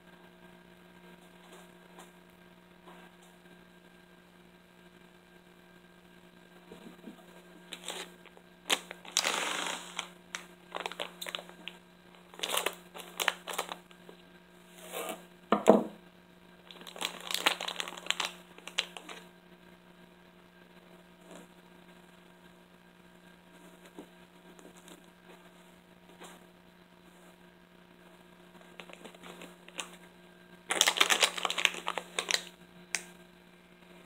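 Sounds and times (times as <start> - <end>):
plastic wrapper crinkling: 7.7 - 14.0, 16.6 - 19.2, 28.7 - 30.0, 30.7 - 33.0.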